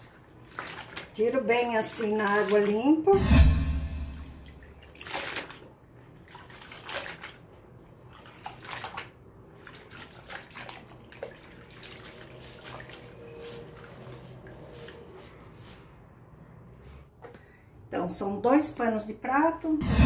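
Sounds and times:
cloth sloshing in soapy water: 0.0s - 3.1s, 4.6s - 15.9s.

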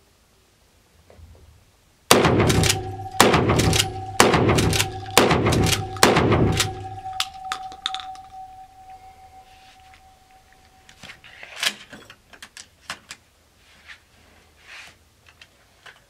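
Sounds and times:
gunshots echoing indoors: 2.1s - 8.6s.

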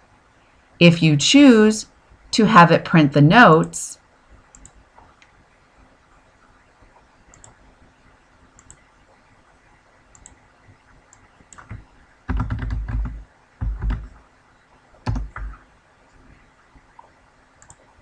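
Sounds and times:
keyboard typing: 4.5s - 5.1s, 7.3s - 7.6s, 8.6s - 8.8s, 10.1s - 10.4s, 11.1s - 14.2s, 15.0s - 15.6s
mouse clicks: 7.3s - 7.6s, 10.1s - 10.4s.

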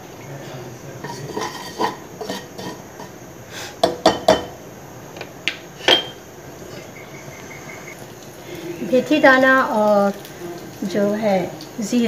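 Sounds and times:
seeds crackling in hot oil: 0.0s - 12.0s
spatula scraping in a wok: 1.0s - 3.8s.

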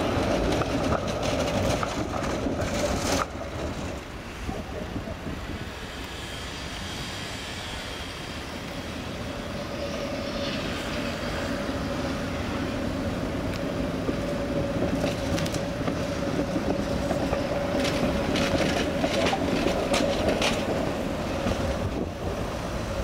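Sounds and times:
tram humming: 0.0s - 23.0s
wheels clacking on rails: 0.0s - 23.0s.

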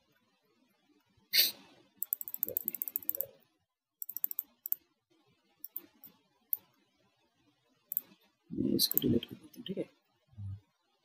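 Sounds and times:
mouse and keyboard clicking: 2.0s - 3.3s, 4.0s - 4.8s, 5.6s - 6.7s, 8.8s - 9.2s.

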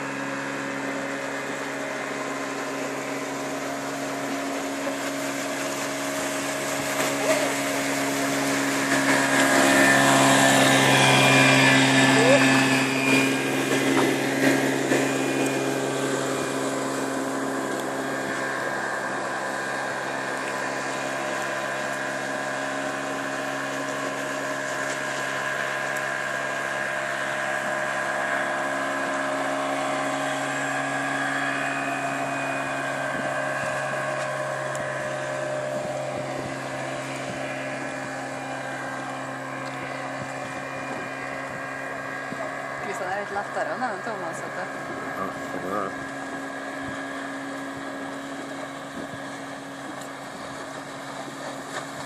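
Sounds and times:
motorboat engine droning: 0.0s - 52.0s
water noise: 0.0s - 52.0s
wind: 0.0s - 52.0s.

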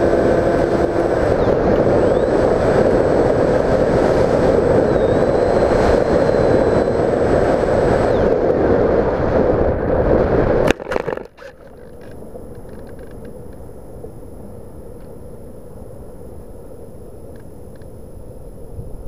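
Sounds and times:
low steady wind noise: 0.0s - 19.0s
faint ticks: 11.2s - 13.7s, 17.2s - 18.0s.

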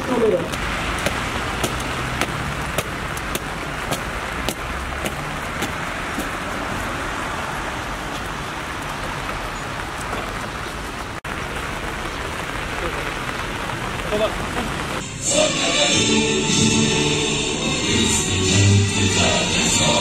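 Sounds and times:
rain hissing: 0.0s - 20.0s
traffic on wet pavement: 0.0s - 20.0s
marching footsteps: 0.4s - 7.0s.

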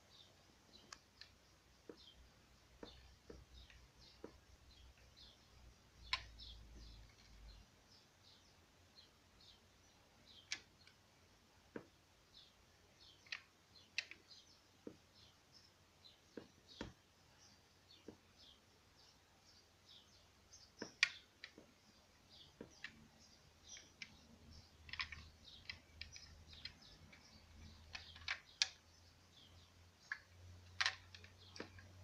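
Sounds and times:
fingers clicking on toy car: 10.3s - 11.0s, 13.0s - 15.0s, 20.8s - 21.8s, 22.4s - 32.0s.

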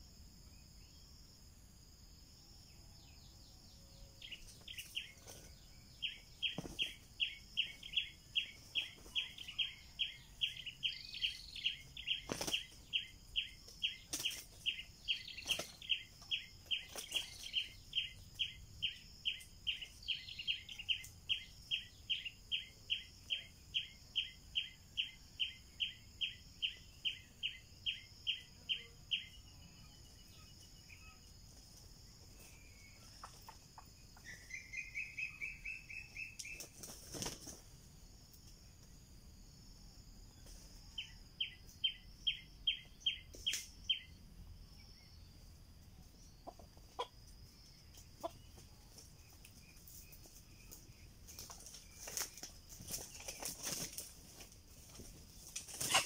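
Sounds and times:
roosters flapping wings: 12.2s - 12.8s, 36.5s - 37.8s, 51.3s - 56.0s.

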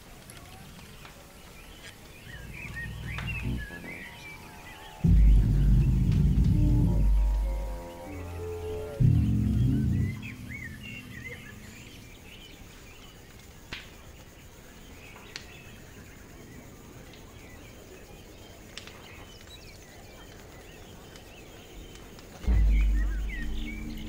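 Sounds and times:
faint bird chirps: 0.4s - 13.6s, 14.2s - 24.0s
low background rumble: 2.1s - 12.6s, 22.4s - 24.0s.

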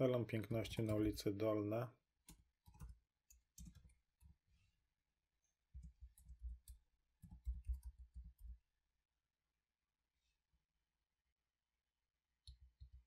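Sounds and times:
keyboard typing: 0.5s - 1.2s, 2.3s - 4.4s, 5.8s - 8.5s.

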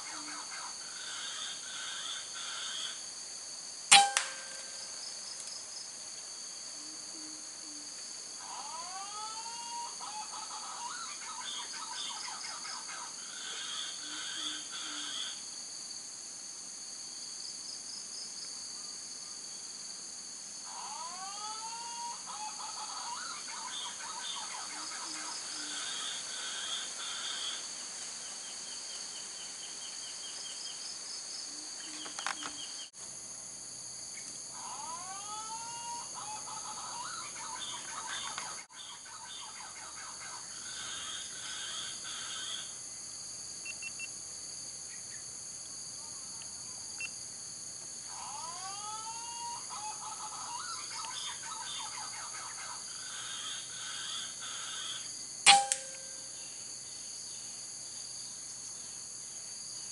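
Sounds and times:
high insect drone: 0.0s - 59.9s
sharp click: 3.9s - 4.8s, 55.5s - 56.2s.

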